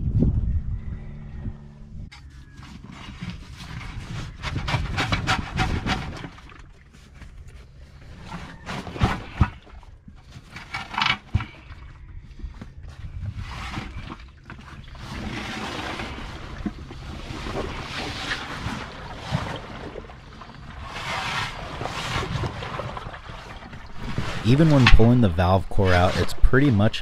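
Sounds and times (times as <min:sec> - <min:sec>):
rubber scraping on rubber and metal: 0:02.2 - 0:06.4, 0:20.5 - 0:27.0.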